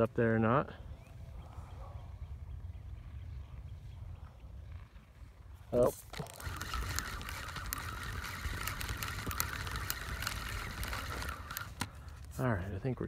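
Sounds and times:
wind rumbling on microphone: 0.8 - 12.3
fishing reel buzzing: 5.8 - 12.3.

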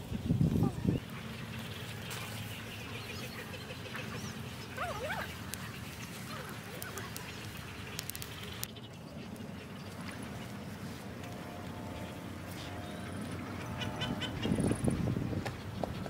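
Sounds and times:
low outdoor hum: 0.0 - 16.0
animal calls: 0.6 - 8.2, 13.5 - 15.0.

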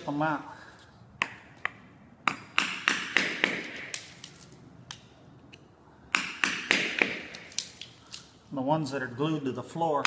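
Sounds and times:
hammer striking chisel: 1.2 - 4.0, 6.1 - 7.4.

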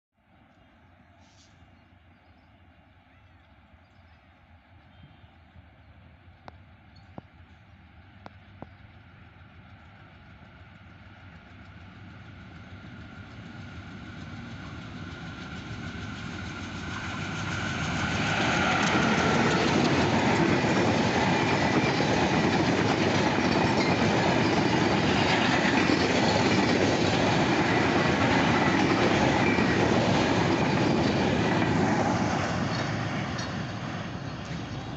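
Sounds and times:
train rumble: 0.7 - 34.9
train wheel clatter: 8.1 - 34.9.

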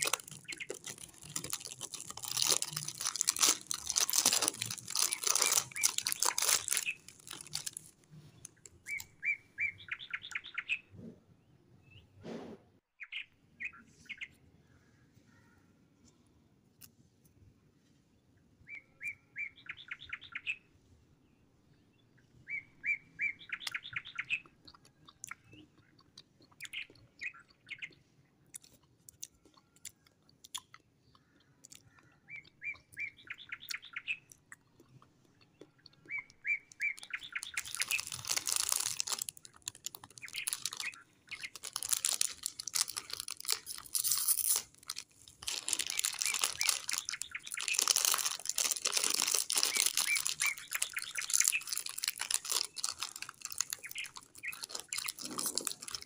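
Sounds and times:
plastic snack packet crinkling: 0.0 - 9.1, 36.0 - 56.0.

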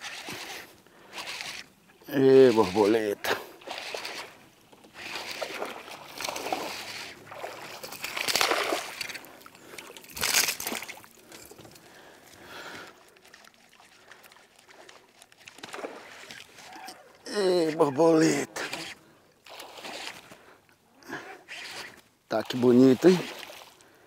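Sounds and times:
fish splashing in water: 5.0 - 11.3.

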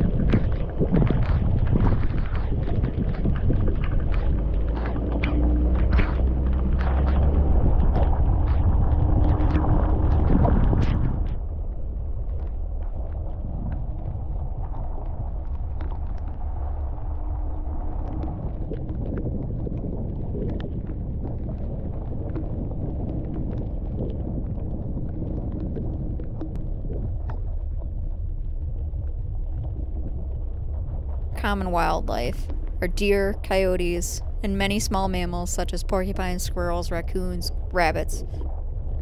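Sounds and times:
gravel clicking under tyres: 0.0 - 17.2.

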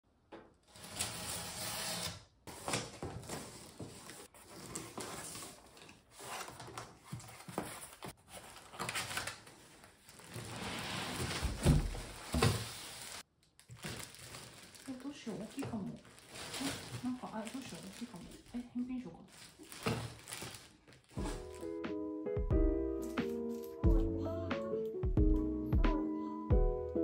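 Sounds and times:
cardboard flaps scraping and rustling: 0.7 - 13.2, 19.4 - 21.7
packing tape ripping: 19.4 - 21.7.

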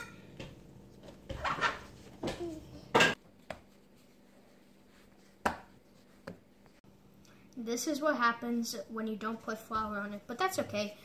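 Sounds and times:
dough slapping on counter: 3.2 - 3.8, 5.3 - 6.5.

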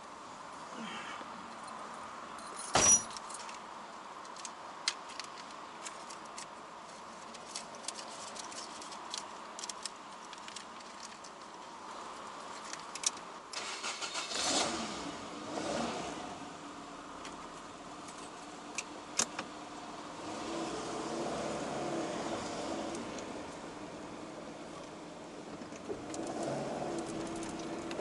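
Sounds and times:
light clicks and rustles: 2.4 - 13.3, 24.8 - 28.0.

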